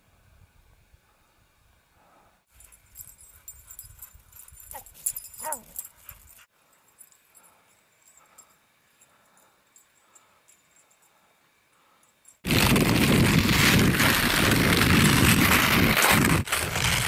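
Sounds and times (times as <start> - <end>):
crackling crunching noise: 12.4 - 17.0.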